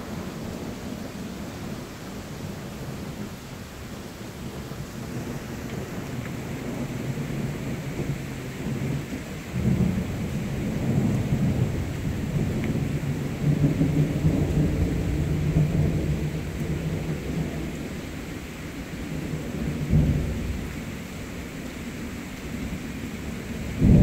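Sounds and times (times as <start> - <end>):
steady rain falling: 0.0 - 24.0
rolling thunder rumble: 4.4 - 21.2, 22.6 - 24.0.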